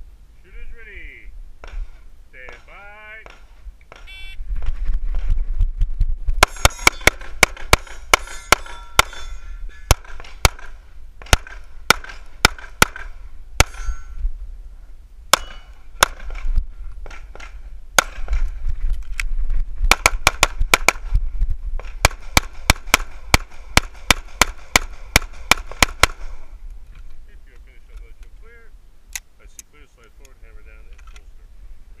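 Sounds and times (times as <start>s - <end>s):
pistol shots: 6.4s - 9.3s, 9.9s - 14.0s, 15.3s - 16.4s, 17.0s - 18.4s, 19.9s - 21.0s, 21.8s - 26.3s.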